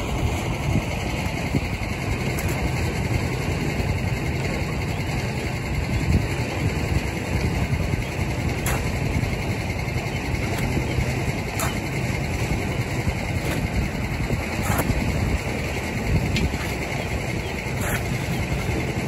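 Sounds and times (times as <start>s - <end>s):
engine idling: 0.0s - 19.0s
shovel scraping wet concrete: 8.5s - 9.0s, 10.4s - 15.6s, 16.3s - 19.0s.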